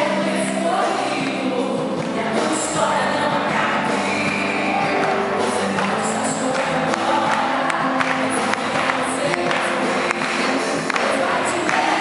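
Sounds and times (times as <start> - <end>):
gospel song with singing: 0.0 - 12.0.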